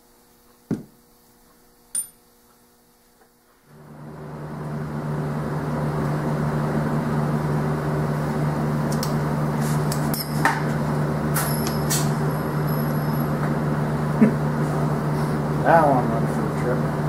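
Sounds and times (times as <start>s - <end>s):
motor humming: 3.7s - 17.0s.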